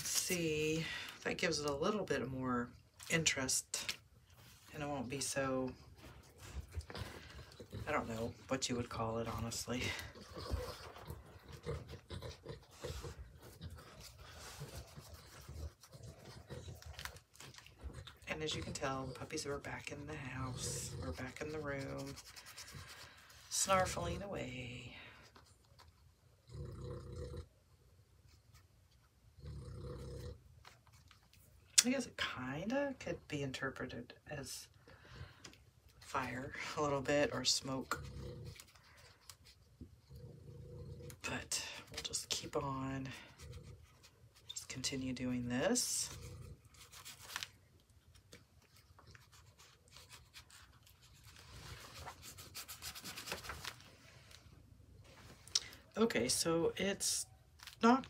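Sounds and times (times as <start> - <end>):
brush scratching on paper: 7.1 - 17.2, 18.4 - 24.2, 46.2 - 47.5, 48.7 - 54.1
puppy snoring-like breaths: 26.4 - 27.6, 29.3 - 30.5, 39.9 - 41.3.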